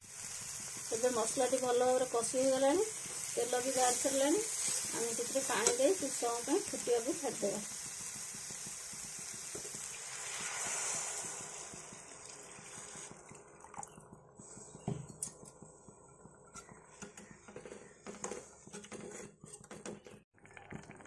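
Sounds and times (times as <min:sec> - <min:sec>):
water hissing in hot pan: 0:00.0 - 0:13.8
metal spatula scraping pan: 0:16.6 - 0:20.2.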